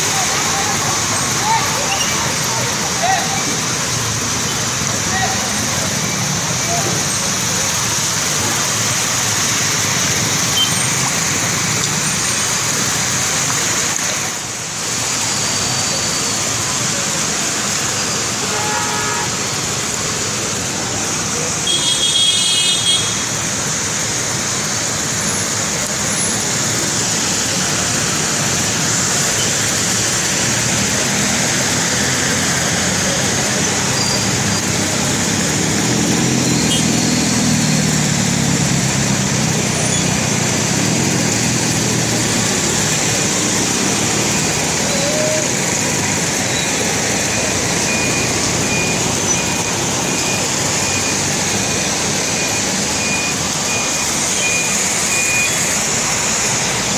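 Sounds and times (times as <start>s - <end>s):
heavy rain pouring: 0.0s - 56.9s
vehicles driving through water: 0.0s - 56.9s.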